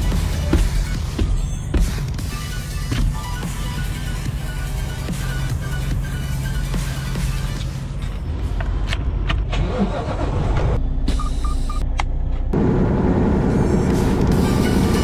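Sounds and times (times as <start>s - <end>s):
road noise: 0.0s - 15.0s
truck engine: 0.0s - 15.0s
short beeps: 11.1s - 11.8s.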